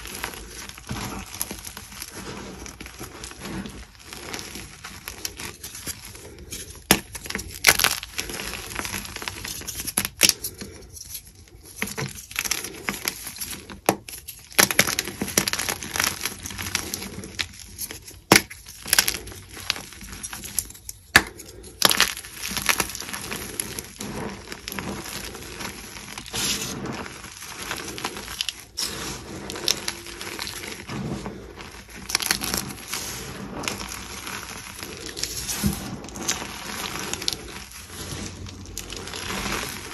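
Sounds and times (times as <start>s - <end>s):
chalk crunching and crackling: 0.0s - 39.9s
chalk pieces snapping: 2.9s - 30.9s.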